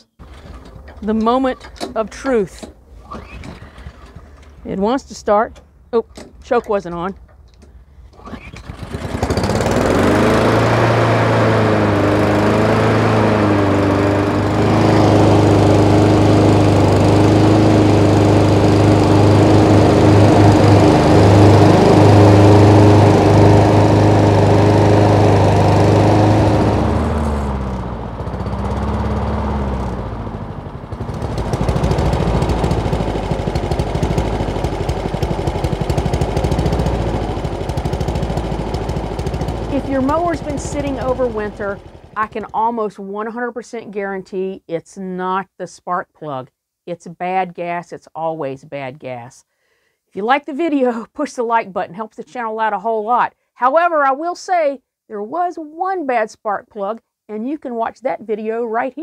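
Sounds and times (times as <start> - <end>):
lawn mower engine running: 0.0 - 42.8.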